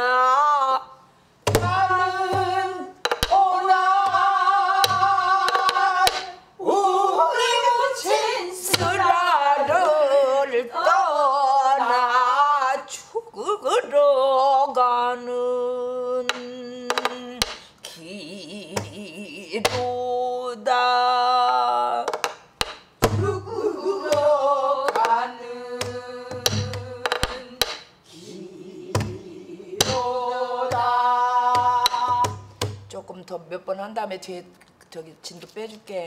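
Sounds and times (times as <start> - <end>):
woman singing with vibrato: 0.0 - 22.2, 23.1 - 33.0
drum hand thumps: 1.5 - 3.4, 25.8 - 27.8, 29.8 - 30.1, 30.7 - 32.9.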